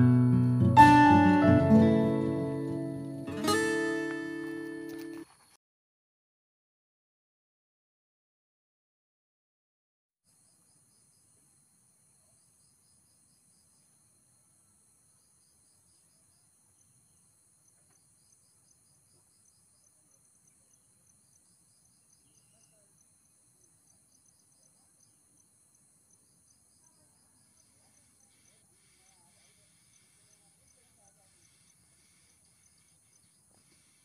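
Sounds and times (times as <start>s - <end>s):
insects chirping: 10.3s - 34.0s.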